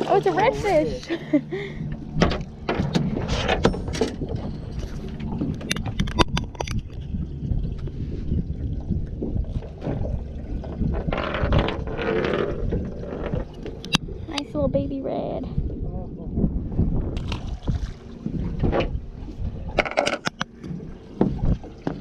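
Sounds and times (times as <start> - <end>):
low wind: 0.0 - 22.0
water noise: 0.0 - 22.0
knocks on a boat deck: 20.6 - 22.0.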